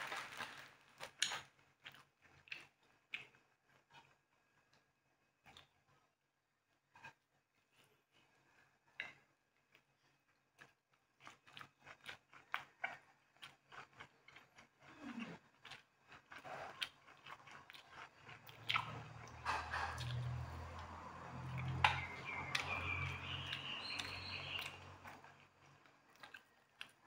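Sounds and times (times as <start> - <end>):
close chewing and biting: 0.0 - 4.2, 9.6 - 27.0
wet mouth clicks: 17.8 - 19.3.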